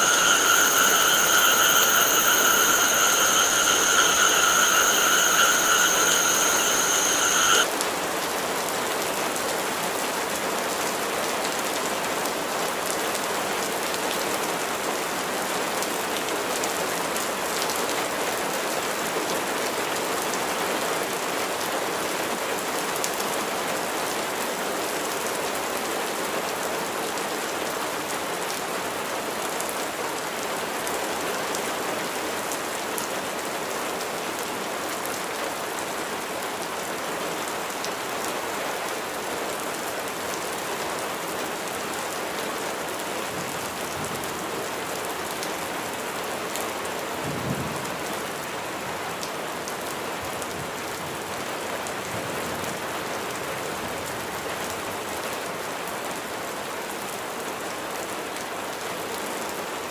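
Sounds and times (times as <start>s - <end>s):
steady rain hiss: 0.0s - 7.7s.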